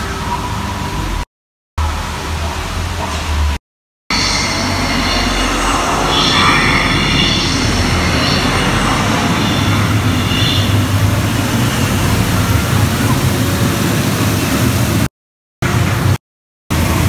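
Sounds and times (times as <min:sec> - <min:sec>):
amusement ride rushing rumble: 0:01.8 - 0:17.0
high squealing tones: 0:04.1 - 0:13.6.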